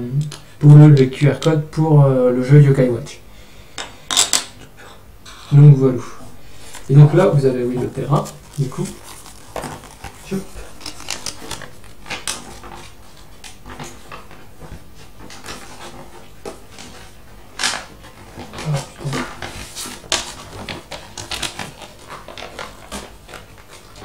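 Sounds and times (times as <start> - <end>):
paper crinkling and rustling: 6.4 - 24.0.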